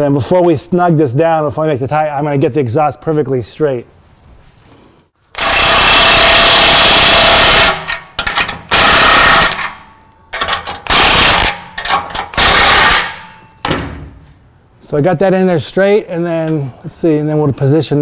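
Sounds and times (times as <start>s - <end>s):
impact wrench hammering: 5.4s - 14.2s.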